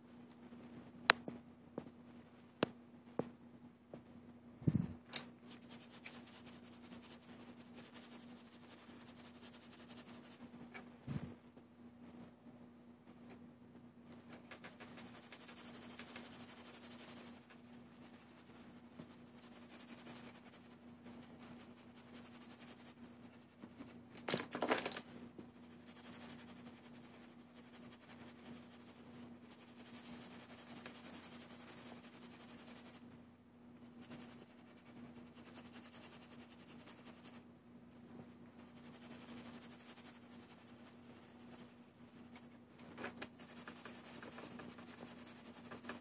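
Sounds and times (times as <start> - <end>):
low steady hum: 0.0 - 46.0
pencil scratching on paper: 5.5 - 10.4, 14.5 - 24.0, 25.6 - 33.0, 33.9 - 37.4, 38.6 - 42.6, 43.2 - 46.0.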